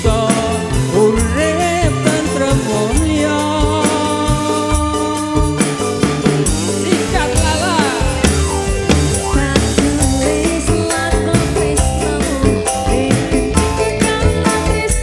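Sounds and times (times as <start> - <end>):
live band playing: 0.0 - 15.0.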